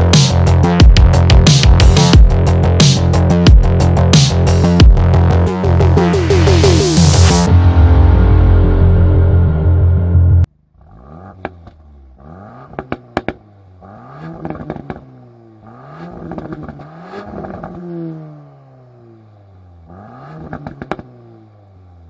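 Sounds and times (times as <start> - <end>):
car engine revving: 0.0 - 21.6
exhaust pops and crackles: 12.6 - 13.5, 14.2 - 15.1, 16.0 - 17.8, 20.4 - 21.2.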